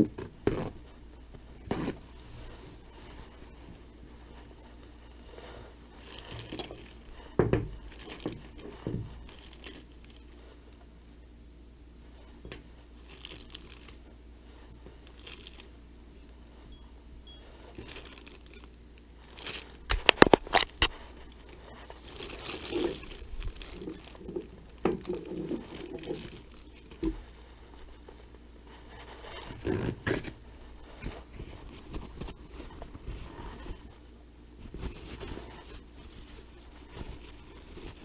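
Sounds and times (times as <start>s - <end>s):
plastic bag crinkling: 5.4s - 10.5s, 12.9s - 15.7s, 17.4s - 33.9s.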